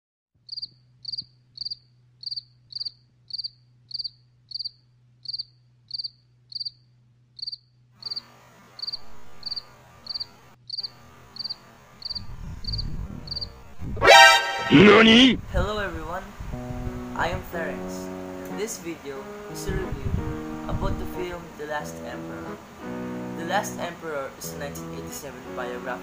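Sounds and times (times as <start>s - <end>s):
cricket chirping: 0.5s - 13.7s
faint steady hiss: 8.0s - 14.0s, 14.9s - 26.0s.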